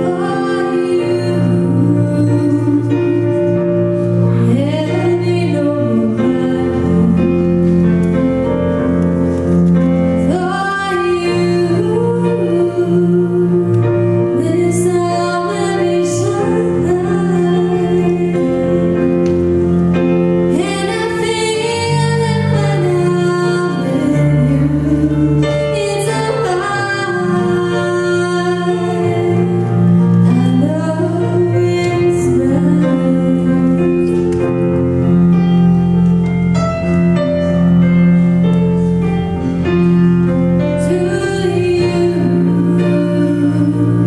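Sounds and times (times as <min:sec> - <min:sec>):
woman singing into a microphone: 0:00.0 - 0:07.9, 0:10.2 - 0:19.4, 0:20.5 - 0:34.8, 0:40.6 - 0:44.0.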